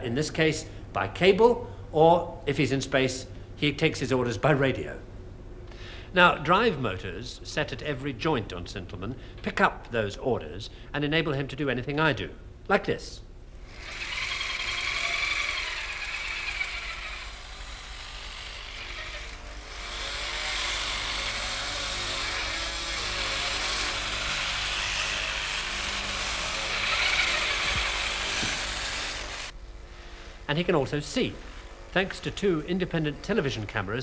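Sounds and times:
electric motors whirring: 13.6 - 29.6.

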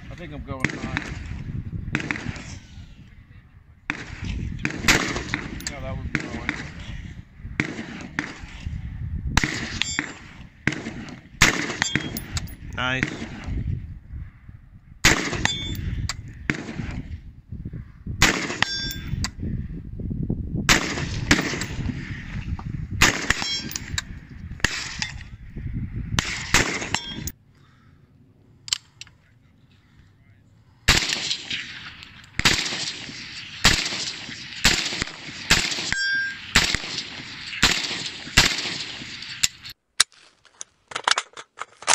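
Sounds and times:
rifle firing string of shots: 0.5 - 2.6, 3.9 - 8.7, 9.4 - 13.6, 15.0 - 17.2, 18.2 - 19.1, 20.7 - 22.3, 23.0 - 23.9, 24.6 - 25.2, 26.2 - 27.3, 30.9 - 39.8
carbine single shots: 0.6 - 2.6, 3.9 - 6.9, 7.6 - 8.6, 9.4 - 13.5, 15.0 - 17.1, 18.2 - 19.1, 20.7 - 22.2, 23.0 - 24.0, 26.2 - 27.3, 30.9 - 39.8
steel targets ringing: 11.8 - 12.2, 18.6 - 19.1, 26.9 - 27.3, 35.9 - 36.6.

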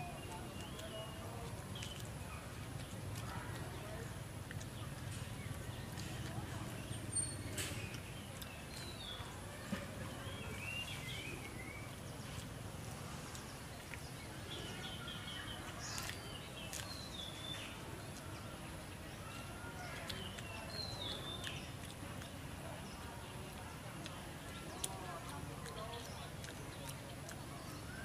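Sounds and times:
outdoor background rumble: 0.0 - 19.5.

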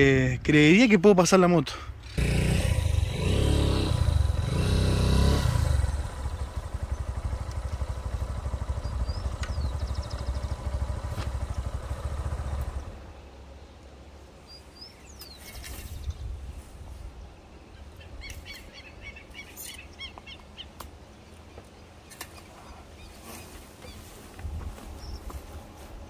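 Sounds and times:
small motorcycle engine running: 2.0 - 13.2.

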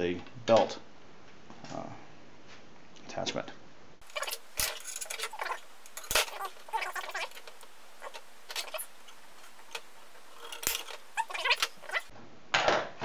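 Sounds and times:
metal parts rattling and scraping: 4.0 - 12.1.

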